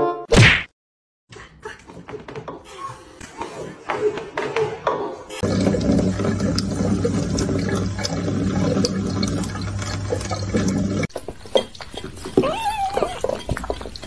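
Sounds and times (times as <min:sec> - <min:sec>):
water running from tap: 0:05.4 - 0:14.0.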